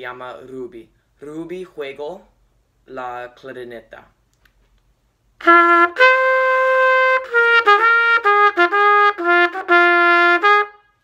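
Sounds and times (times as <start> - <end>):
solo trumpet: 5.4 - 11.0.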